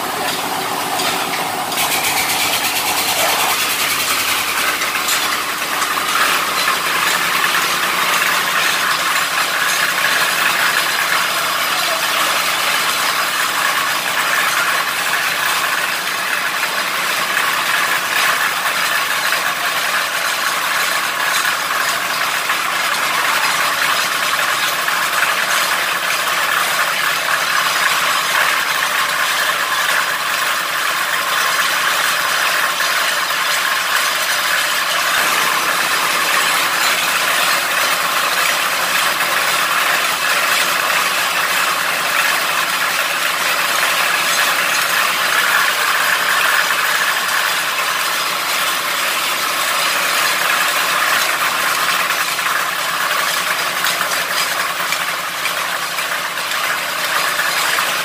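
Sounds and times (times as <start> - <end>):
drilling rig mechanical clatter: 0.0 - 58.0.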